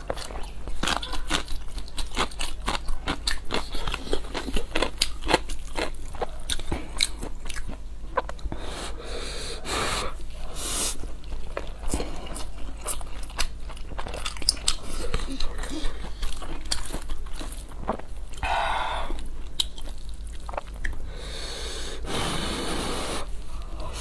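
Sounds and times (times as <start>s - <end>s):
close chewing with mouth clicks: 0.0s - 8.7s, 10.8s - 21.0s.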